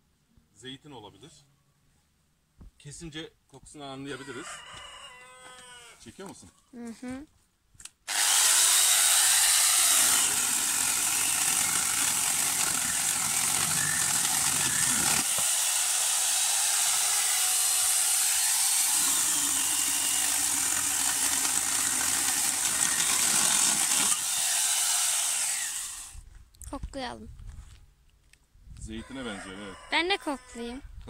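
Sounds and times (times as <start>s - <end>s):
chainsaw chain cutting log: 8.0s - 26.2s
angle grinder motor whining: 8.1s - 26.2s.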